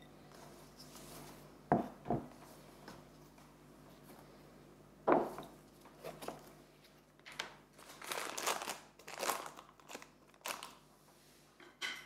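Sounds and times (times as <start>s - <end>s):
foil pouch crinkling: 7.3s - 10.8s.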